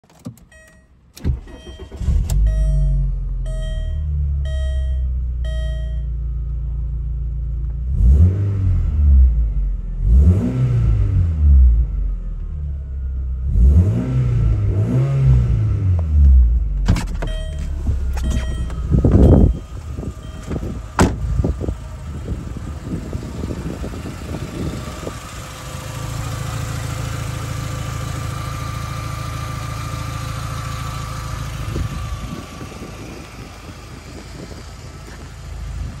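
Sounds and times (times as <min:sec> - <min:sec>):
car engine idling: 0:00.5 - 0:07.9, 0:16.0 - 0:36.0
loud thump: 0:20.4 - 0:21.3.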